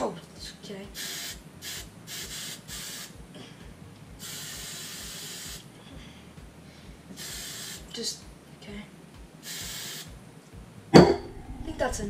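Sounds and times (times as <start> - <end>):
aerosol can spraying: 1.0 - 3.2, 4.2 - 5.7, 7.1 - 7.9, 9.4 - 10.1.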